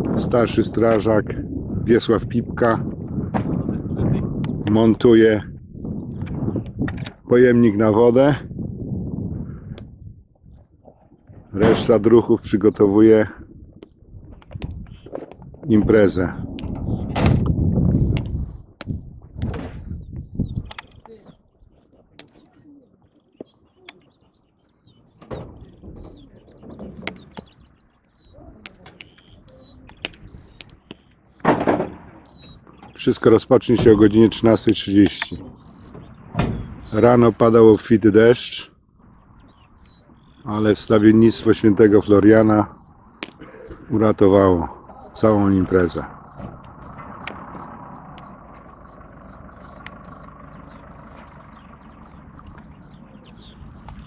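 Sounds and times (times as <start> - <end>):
low rumble: 0.0 - 21.0, 29.4 - 38.1, 38.7 - 54.0
birds chirping: 0.0 - 54.0
engine idling: 24.8 - 54.0.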